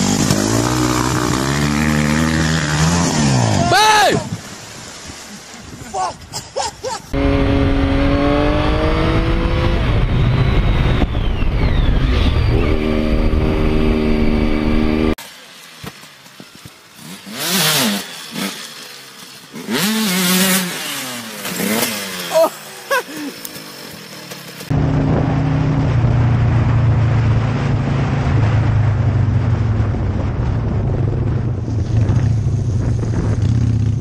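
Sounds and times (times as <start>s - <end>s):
dirt bike engine revving: 0.0s - 3.8s, 7.1s - 15.2s, 16.9s - 26.1s
motorcycle engine slowing: 16.1s - 34.0s.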